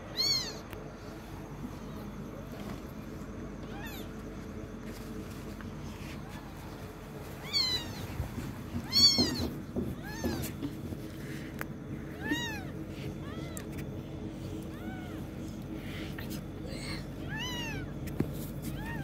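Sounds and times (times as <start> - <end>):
kitten mewing: 0.1 - 0.7, 7.4 - 8.1, 8.8 - 10.7, 12.1 - 13.9, 16.3 - 18.0.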